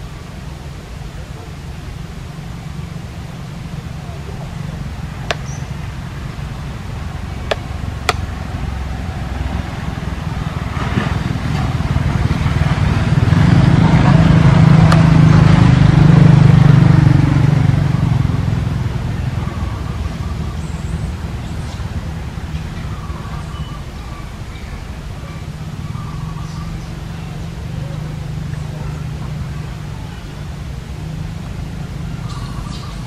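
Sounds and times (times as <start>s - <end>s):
vehicle engine passing: 0.0s - 23.5s
sharp clicks: 5.3s - 5.6s, 7.5s - 8.3s.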